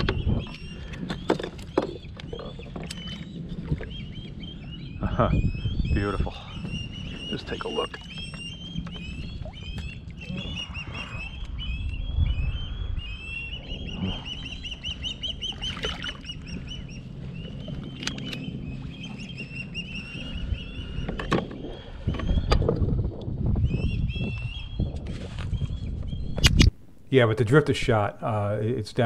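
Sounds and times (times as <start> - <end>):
birds chattering: 0.0 - 23.0.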